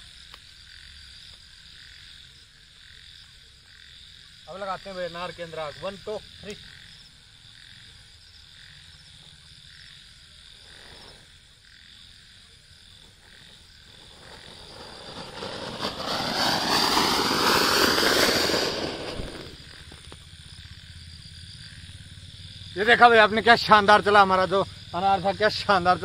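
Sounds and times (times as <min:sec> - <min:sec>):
fountain firework hissing: 0:13.0 - 0:20.0.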